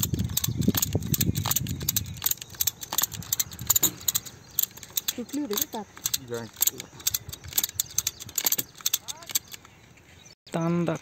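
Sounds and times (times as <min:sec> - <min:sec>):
ratchet metallic clicks: 0:00.0 - 0:09.7.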